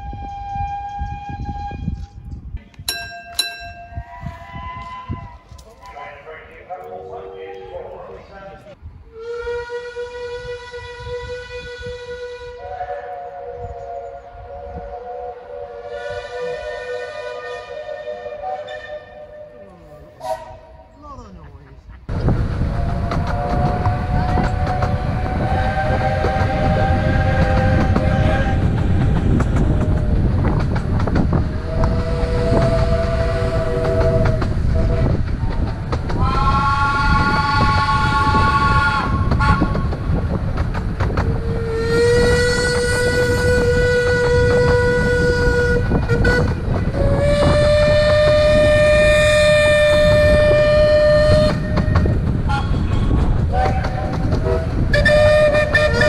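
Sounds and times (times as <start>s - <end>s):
locomotive whistle blasts: 0.0s - 2.1s, 4.0s - 5.4s, 9.1s - 20.9s, 22.7s - 28.7s, 31.6s - 35.2s, 36.2s - 39.8s, 41.5s - 56.0s
train rumble: 0.0s - 56.0s.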